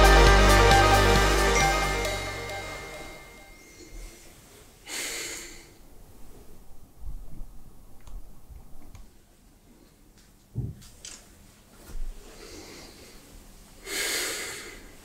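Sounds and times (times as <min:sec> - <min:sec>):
background music: 0:00.0 - 0:03.6
person exhaling heavily: 0:04.9 - 0:05.8, 0:13.8 - 0:15.0.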